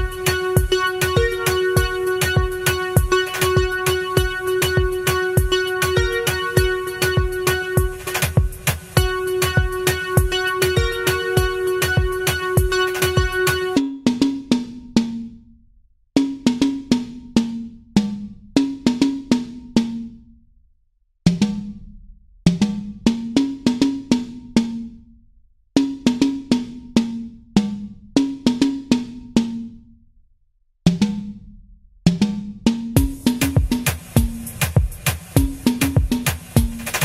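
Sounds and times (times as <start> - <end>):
pitched drum hits: 0.0 - 13.8, 33.0 - 37.0.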